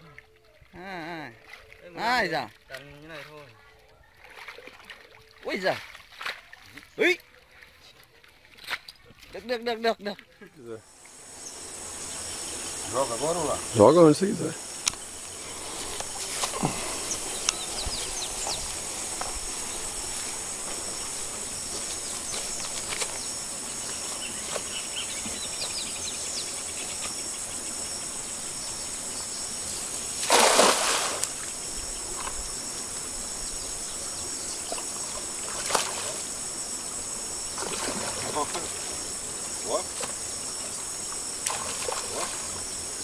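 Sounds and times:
net splashing into water: 4.2s - 6.7s, 30.2s - 31.5s, 34.7s - 36.3s, 37.5s - 38.8s, 41.4s - 42.5s
insect chirring: 9.4s - 43.0s.

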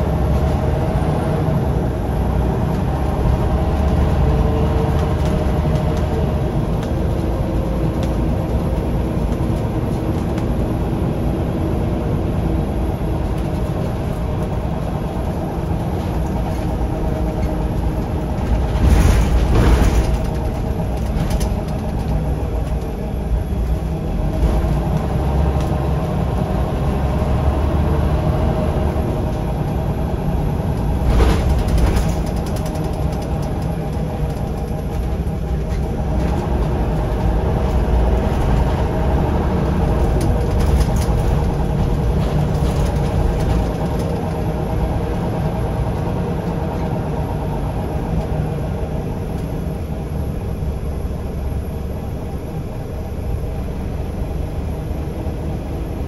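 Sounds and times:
bus diesel engine rumbling: 0.0s - 56.0s
rumbling jolt: 17.8s - 22.1s, 30.6s - 33.4s.

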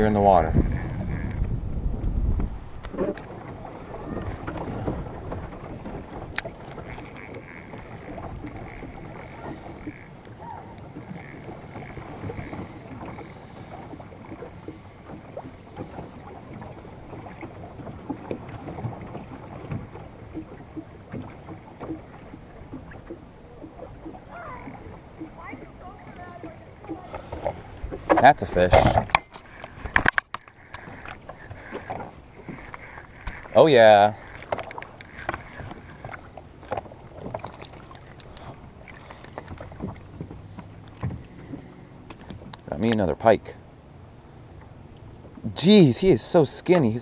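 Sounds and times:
wind on microphone: 0.0s - 12.8s
water lapping against boat hull: 0.0s - 47.0s
spinning reel cranking: 6.7s - 10.2s, 29.3s - 36.3s.

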